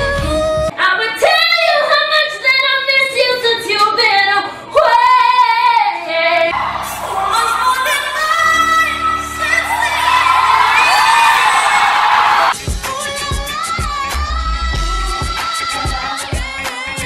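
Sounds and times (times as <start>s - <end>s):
keyboard and band accompaniment: 6.5s - 14.2s
woman singing high notes: 7.0s - 11.8s.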